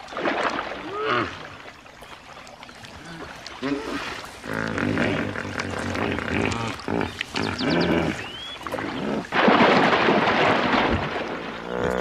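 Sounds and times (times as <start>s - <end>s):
splashing and thrashing in mud: 0.0s - 12.0s
animal grunts and roars: 3.0s - 9.8s, 10.5s - 12.0s.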